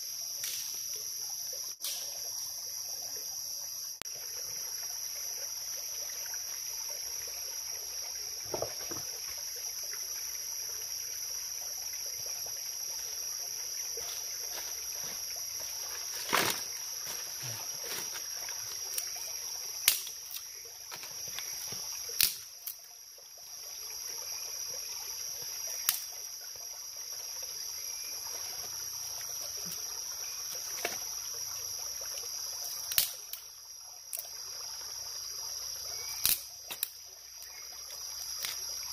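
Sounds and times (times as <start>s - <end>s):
insects droning: 0.0s - 38.9s
trickling stream: 0.0s - 38.9s
sticks cracking and snapping: 19.8s - 20.5s, 22.2s - 22.8s, 32.9s - 33.2s, 36.2s - 36.9s.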